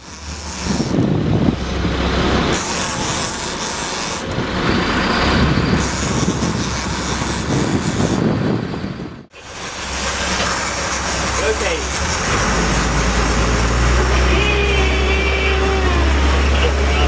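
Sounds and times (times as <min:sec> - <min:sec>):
boat engine running: 0:00.0 - 0:17.0
wind buffeting microphone: 0:00.6 - 0:03.3, 0:04.3 - 0:09.3
water rushing: 0:09.3 - 0:17.0.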